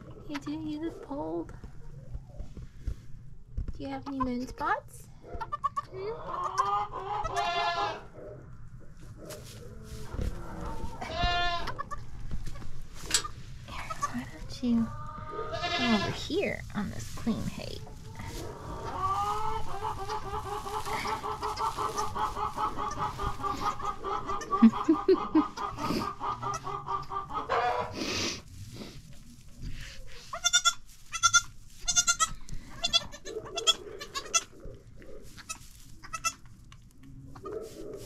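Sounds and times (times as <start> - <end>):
goat bleating: 5.5 - 8.0, 11.0 - 12.0, 15.4 - 16.2, 30.3 - 34.5, 35.4 - 36.4.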